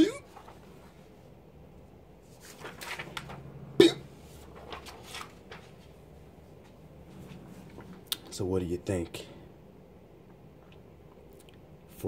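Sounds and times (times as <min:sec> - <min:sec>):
cards rustling and scraping: 0:04.3 - 0:05.9.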